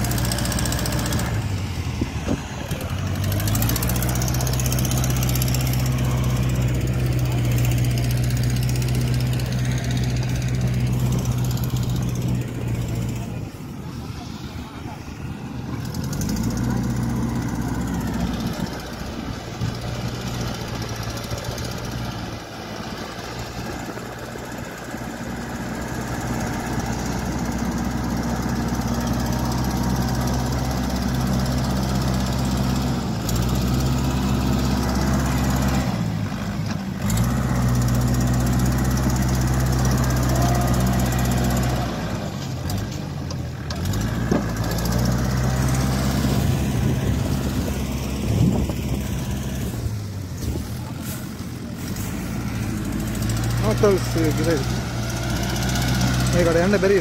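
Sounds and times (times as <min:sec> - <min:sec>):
tractor diesel engine under load: 0:00.0 - 0:57.0.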